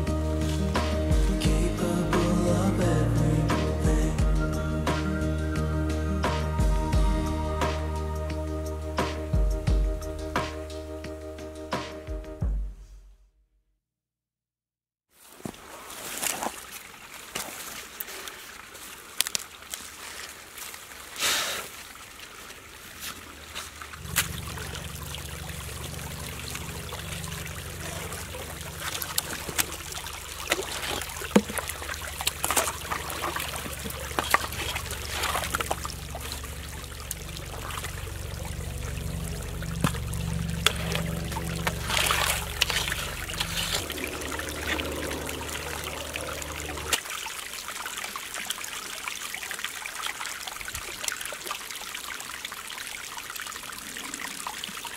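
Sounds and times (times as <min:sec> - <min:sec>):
stream trickling over stones: 0:00.0 - 0:05.2, 0:15.2 - 0:54.9
hands splashing in water: 0:22.9 - 0:47.2
steady low hum: 0:24.0 - 0:47.0.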